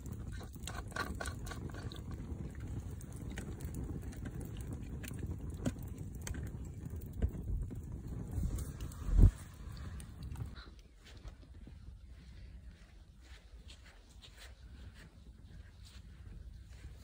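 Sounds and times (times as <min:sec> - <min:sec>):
sharp snaps and pops: 0:00.0 - 0:10.6
low steady rumble: 0:00.0 - 0:17.0
wood fire crackling: 0:00.0 - 0:17.0.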